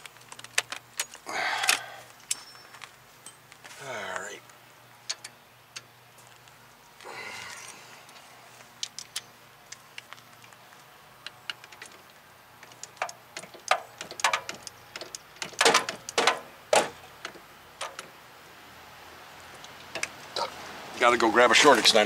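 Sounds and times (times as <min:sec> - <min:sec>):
metallic knocks: 0:12.8 - 0:18.1.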